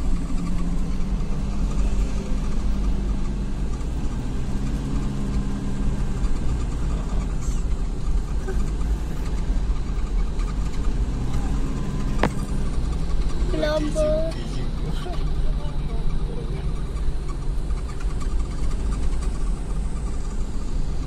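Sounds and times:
car engine and tyre rumble: 0.0 - 21.0.

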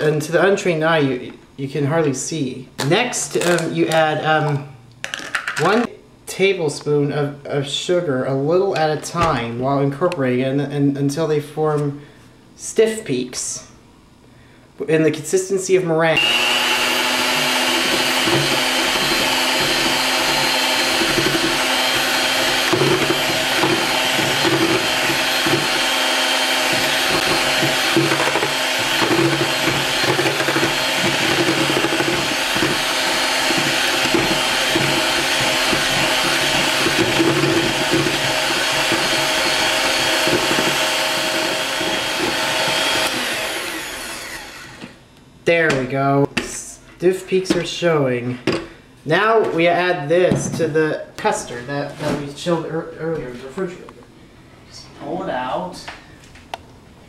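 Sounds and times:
electric hand mixer whipping: 16.1 - 45.0.

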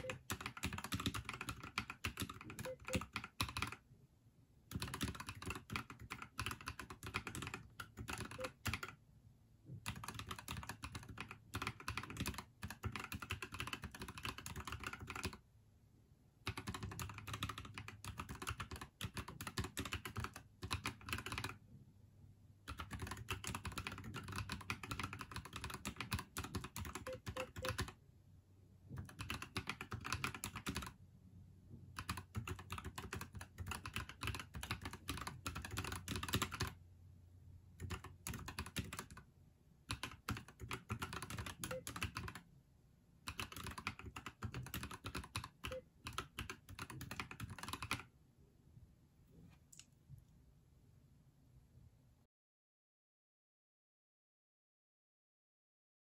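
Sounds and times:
mechanical keyboard typing: 0.0 - 3.8, 4.7 - 9.0, 9.8 - 15.4, 16.5 - 21.6, 22.7 - 28.0, 28.9 - 31.0, 31.9 - 36.8, 37.8 - 39.2, 39.9 - 42.4, 43.3 - 48.1.

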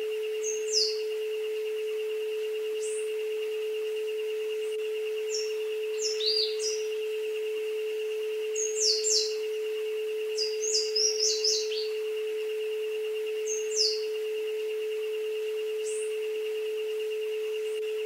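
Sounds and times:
steady pure tone: 0.0 - 18.0
wavering higher tone: 0.0 - 18.0
bird chirps: 0.4 - 1.2, 5.2 - 7.1, 8.5 - 12.4, 13.3 - 14.6, 15.8 - 16.2.

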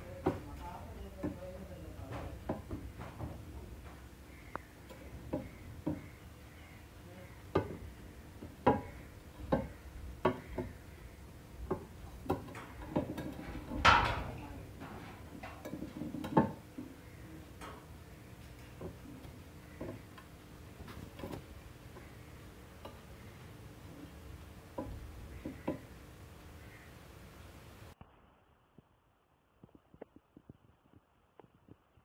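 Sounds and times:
seashell tapping on glass shelf: 2.2 - 6.1, 7.5 - 10.8, 15.4 - 16.9, 24.8 - 25.9.

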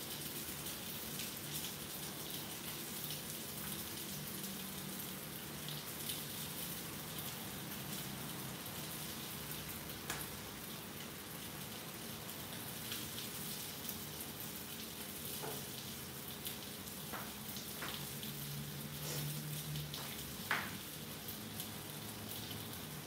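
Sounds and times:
fish sizzling in oil: 12.5 - 23.0.

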